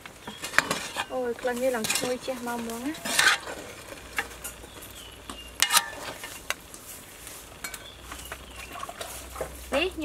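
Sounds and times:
faint simmer: 0:00.0 - 0:10.0
ladle clinking against metal pot: 0:05.6 - 0:06.1.

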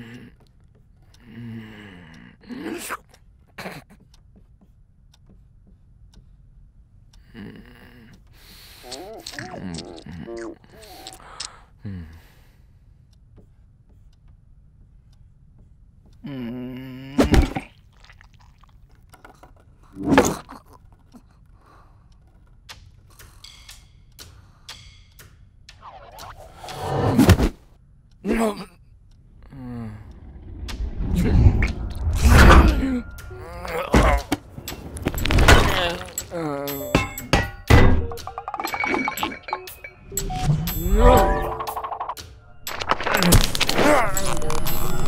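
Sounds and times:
low mumbling voice: 0:08.8 - 0:11.0, 0:16.2 - 0:17.5
rising groan: 0:29.3 - 0:34.5.

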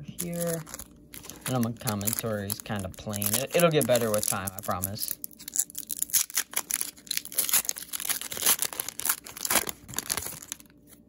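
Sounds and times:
foil wrapper crinkling and tearing: 0:00.2 - 0:11.0.

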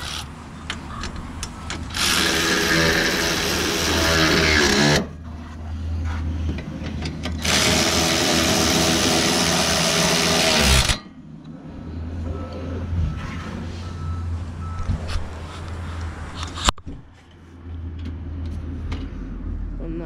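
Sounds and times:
cordless power tool spinning: 0:01.9 - 0:05.0, 0:07.4 - 0:11.0.

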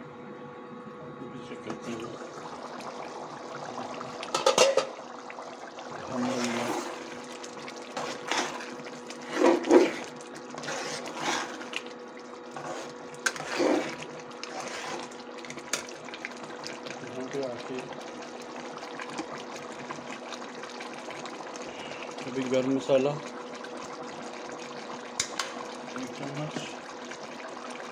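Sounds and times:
cooktop hum: 0:00.0 - 0:27.9
ladle scraping and sloshing: 0:01.7 - 0:27.9
ladle clinking against pot: 0:04.3 - 0:05.0.

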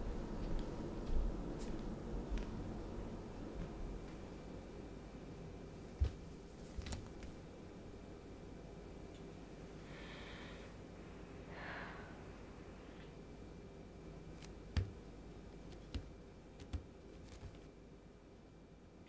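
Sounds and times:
bare footsteps on tile floor: 0:00.0 - 0:02.6, 0:05.9 - 0:07.4, 0:14.4 - 0:15.0, 0:15.7 - 0:17.7
soft breaths: 0:09.7 - 0:13.2.

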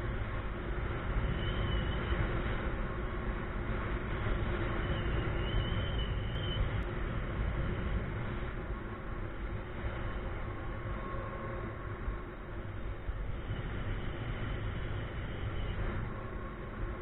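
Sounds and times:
wind rushing over microphone: 0:00.0 - 0:17.0.

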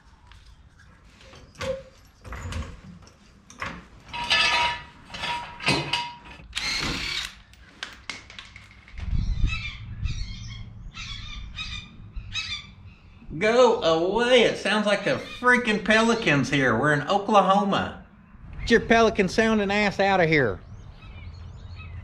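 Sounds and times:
power tool bursts: 0:06.5 - 0:07.4
bird squawking: 0:09.4 - 0:13.2, 0:15.1 - 0:16.2.

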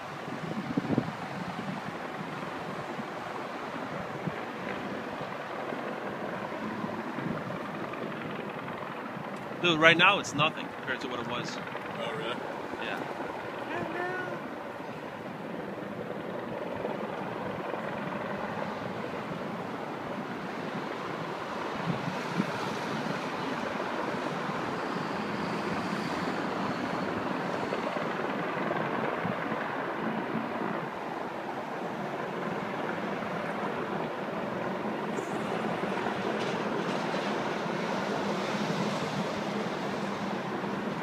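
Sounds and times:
city street traffic passing: 0:09.0 - 0:16.0, 0:18.4 - 0:41.0.

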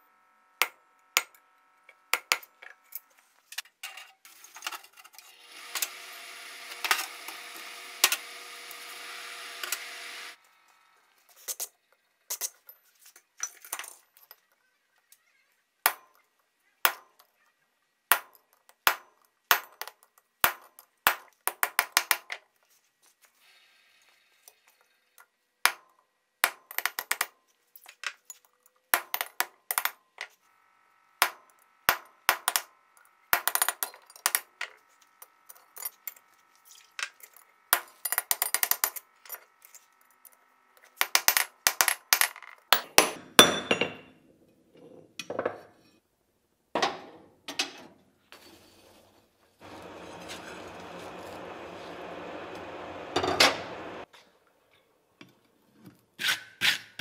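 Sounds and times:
hammer striking on anvil: 0:42.8 - 0:44.1.

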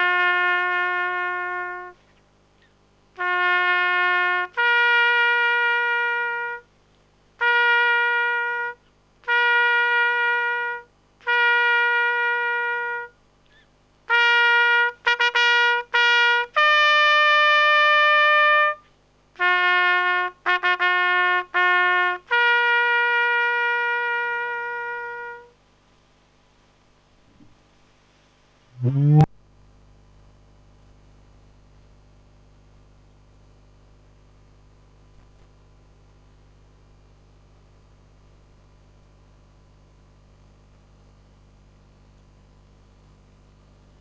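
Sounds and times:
solo trumpet bugle call: 0:00.0 - 0:02.0, 0:03.2 - 0:06.7, 0:07.4 - 0:13.2, 0:14.1 - 0:25.6.

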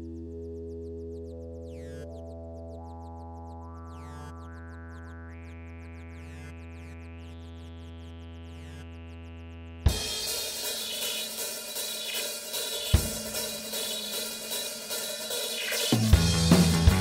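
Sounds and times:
low synth drone and chords: 0:00.0 - 0:17.0
drum kit with cymbals: 0:09.9 - 0:17.0.

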